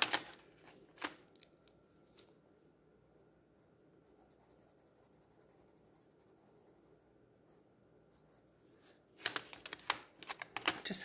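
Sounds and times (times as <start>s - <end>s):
pencil scratching on paper: 3.6s - 8.5s.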